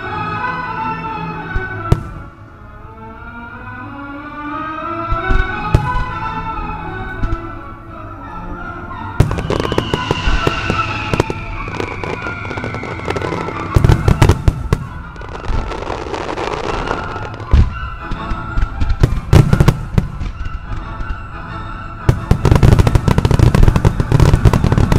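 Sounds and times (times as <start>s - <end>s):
fireworks cracking and booming: 1.9s - 2.4s, 5.1s - 6.3s, 9.2s - 21.2s, 22.0s - 24.9s.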